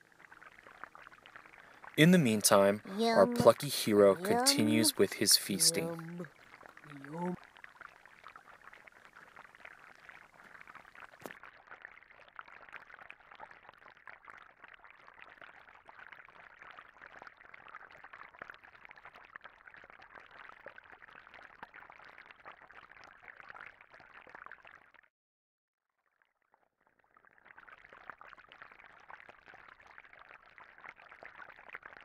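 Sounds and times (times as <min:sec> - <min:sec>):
underwater bubbling: 0:00.0 - 0:02.0, 0:06.0 - 0:15.5.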